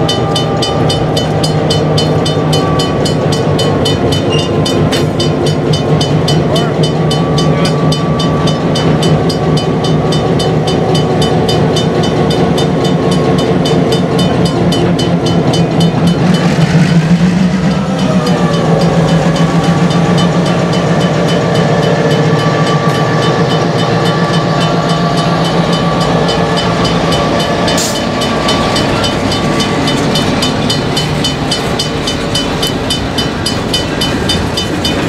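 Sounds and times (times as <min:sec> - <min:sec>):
locomotive bell ringing: 0:00.0 - 0:35.0
locomotive engine running: 0:00.0 - 0:35.0.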